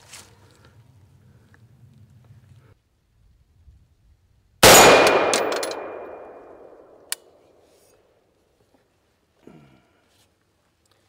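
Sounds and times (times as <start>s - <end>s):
rifle shot echoing: 4.6s - 7.1s.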